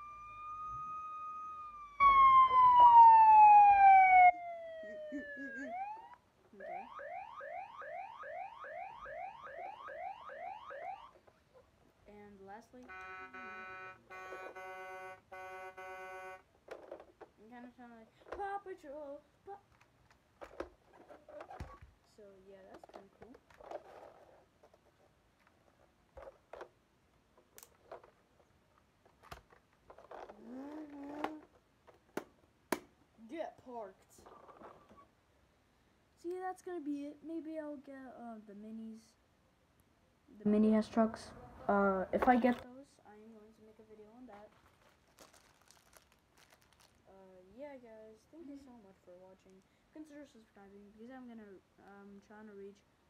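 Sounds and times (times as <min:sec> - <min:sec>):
toy siren wail and yelp: 0:00.0 - 0:11.2.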